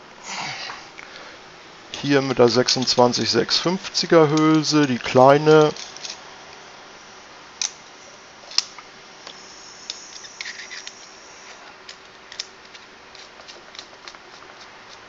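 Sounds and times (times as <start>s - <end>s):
metal parts clicking: 4.4s - 6.2s, 9.9s - 11.0s, 11.8s - 15.0s.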